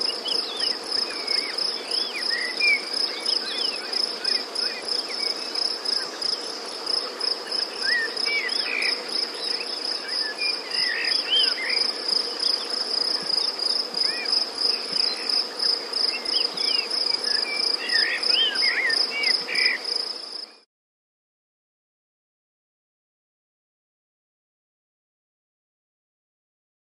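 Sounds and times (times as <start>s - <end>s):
insects chirping: 0.0s - 20.6s.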